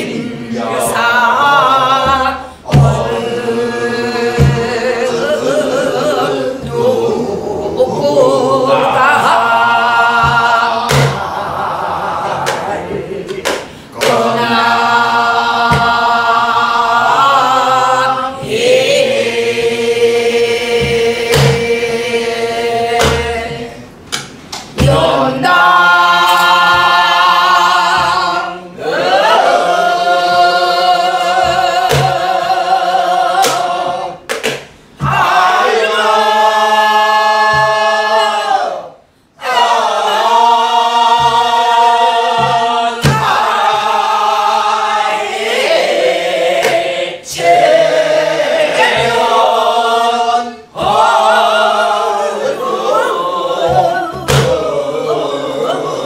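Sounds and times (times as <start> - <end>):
group singing folk song: 0.0 - 56.0
low drum thumps: 1.9 - 3.5, 4.2 - 5.0, 24.8 - 25.5.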